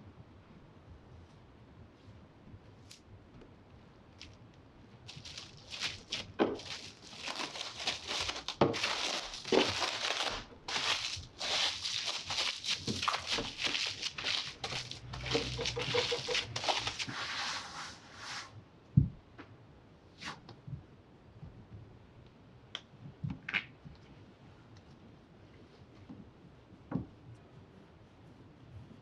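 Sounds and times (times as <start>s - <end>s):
cling film crinkling: 5.1s - 17.2s.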